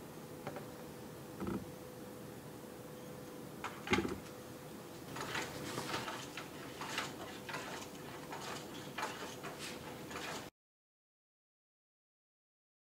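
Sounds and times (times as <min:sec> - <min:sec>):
plastic walker clicking and rattling: 0:05.1 - 0:10.5.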